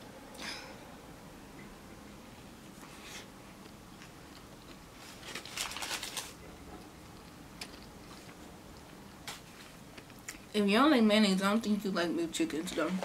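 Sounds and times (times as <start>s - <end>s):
quiet chewing: 2.8s - 5.2s, 6.6s - 10.5s
crackly crunching: 3.6s - 10.5s.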